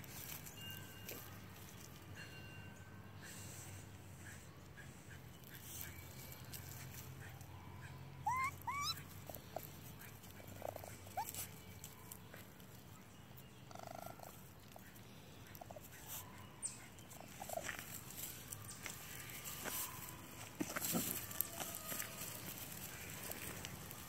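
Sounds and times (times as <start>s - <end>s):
baby raccoons chirping: 4.2s - 12.8s, 13.6s - 24.0s
raccoon purring trill: 13.7s - 14.4s.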